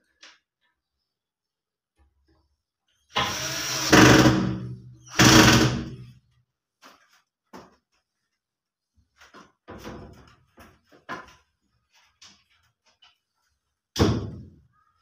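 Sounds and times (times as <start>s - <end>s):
cordless drill driving screws: 3.1s - 6.0s.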